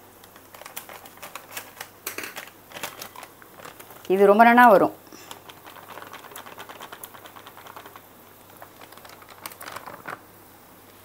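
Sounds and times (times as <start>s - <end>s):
plastic packet crinkling: 0.2s - 10.3s
flour pattering into steel tumbler: 5.2s - 10.3s.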